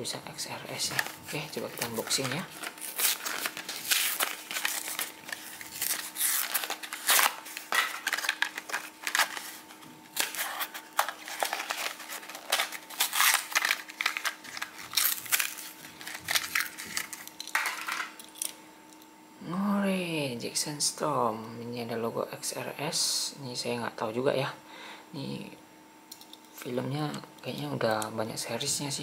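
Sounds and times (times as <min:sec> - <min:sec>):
plastic blister pack tearing: 0:00.8 - 0:18.5.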